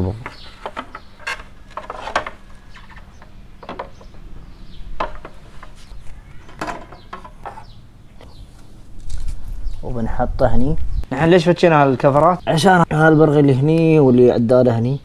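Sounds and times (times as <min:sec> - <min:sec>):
plastic clicks and knocks: 0:03.2 - 0:04.2, 0:05.0 - 0:05.8.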